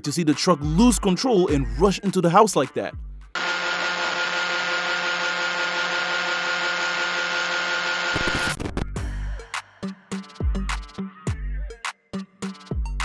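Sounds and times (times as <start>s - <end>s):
high whine: 3.4s - 8.6s.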